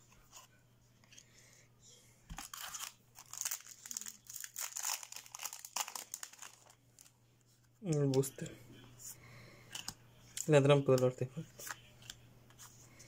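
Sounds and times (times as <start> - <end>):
foil wrapper crinkling and tearing: 2.4 - 7.1.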